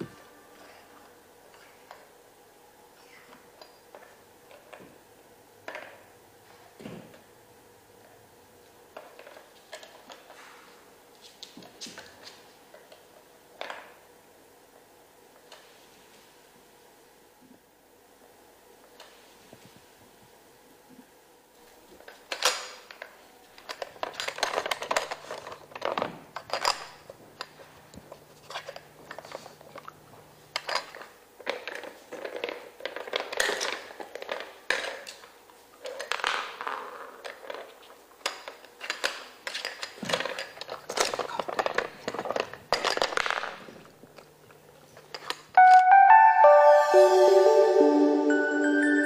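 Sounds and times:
plastic puzzle pieces clattering: 23.6 - 27.7, 30.6 - 35.2, 35.8 - 43.7.

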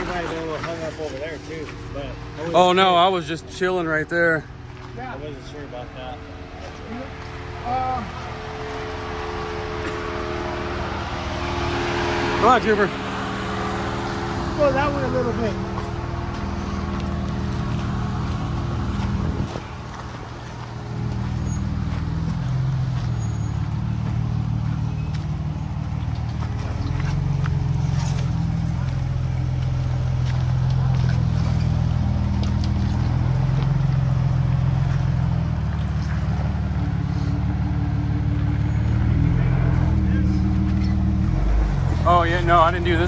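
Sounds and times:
car engine at low revs: 0.0 - 43.0.

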